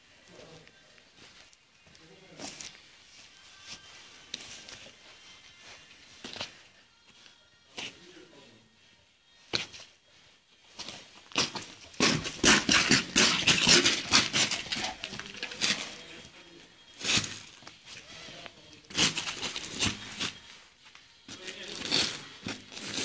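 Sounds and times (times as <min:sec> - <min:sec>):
ball scuffing on concrete: 0:10.8 - 0:16.4.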